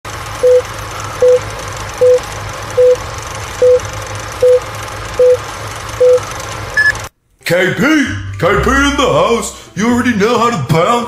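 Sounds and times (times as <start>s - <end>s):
short beeps: 3.6s - 3.8s, 5.2s - 5.4s, 6.0s - 6.2s, 6.8s - 7.0s.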